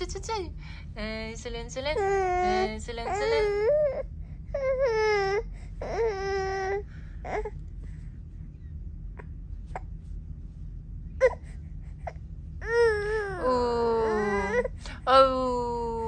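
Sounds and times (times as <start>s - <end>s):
baby crying: 2.0s - 4.0s, 4.6s - 7.5s, 12.6s - 14.7s.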